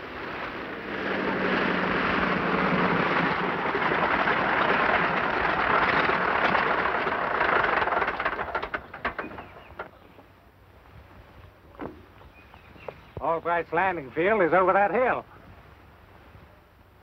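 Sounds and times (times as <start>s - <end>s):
propeller plane engine drone: 0.0s - 10.7s
engine ticking: 1.6s - 10.0s.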